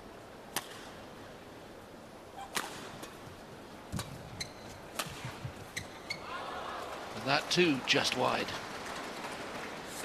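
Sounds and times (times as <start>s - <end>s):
racket hitting shuttlecock: 0.5s - 1.0s, 2.4s - 3.2s, 4.9s - 5.9s
shoe squeak: 4.4s - 4.7s, 5.7s - 6.3s.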